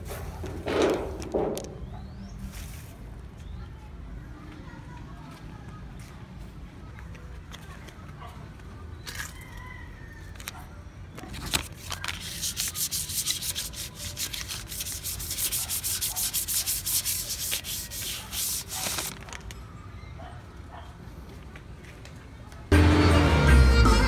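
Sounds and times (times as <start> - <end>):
paper rubbing on sticker: 11.3 - 19.1.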